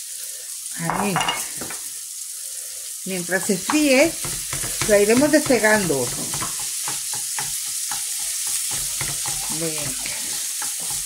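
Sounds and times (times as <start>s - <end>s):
meat sizzling in a frying pan: 0.0s - 11.0s
spatula scraping and tapping pan: 3.4s - 11.0s.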